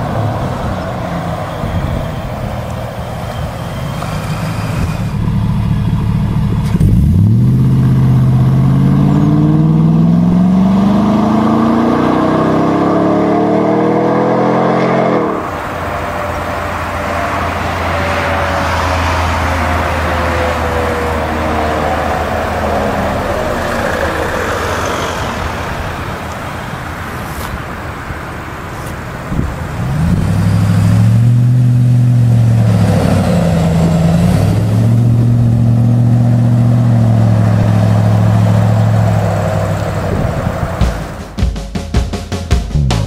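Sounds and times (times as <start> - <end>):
vehicle driving past: 0.0 - 27.4
engine revving: 3.8 - 26.3, 29.8 - 41.4.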